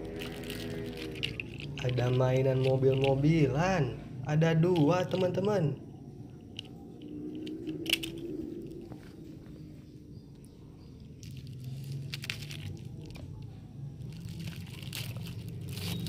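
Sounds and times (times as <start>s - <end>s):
plastic bag crinkling: 0.0s - 3.4s, 11.1s - 16.0s.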